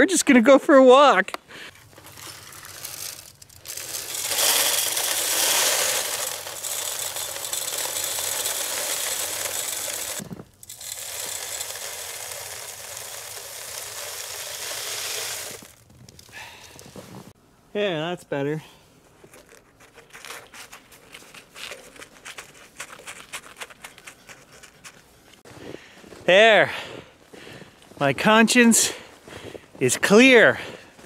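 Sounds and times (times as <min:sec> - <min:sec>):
bird seed rattling into feeder: 0:02.0 - 0:16.2.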